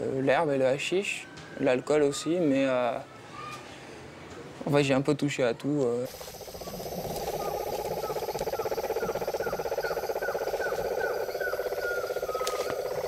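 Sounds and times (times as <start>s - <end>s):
fast steady trill: 6.1s - 13.0s
short chirping call: 6.1s - 13.0s.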